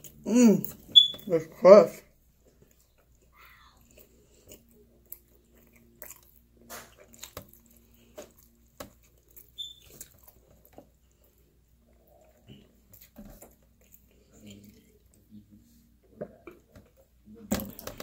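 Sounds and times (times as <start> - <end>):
person chewing pizza: 0.0 - 1.4, 2.3 - 18.0.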